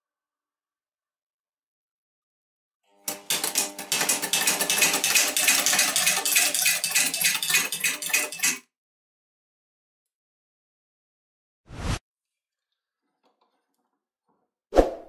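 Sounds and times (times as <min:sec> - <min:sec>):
fast metallic clatter: 0:03.0 - 0:08.6.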